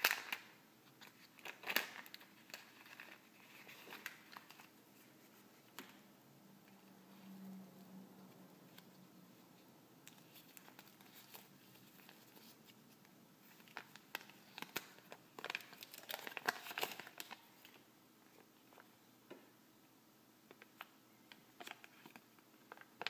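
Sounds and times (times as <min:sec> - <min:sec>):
paper leaflet crinkling: 0:00.0 - 0:06.0, 0:10.0 - 0:18.9.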